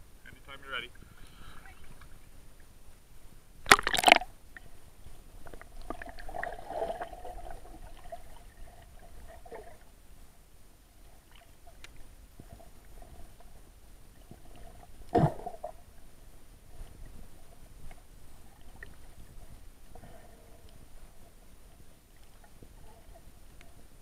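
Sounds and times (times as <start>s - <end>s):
water splashing: 3.6s - 4.3s
small clicks underwater: 3.6s - 4.7s, 11.3s - 12.6s.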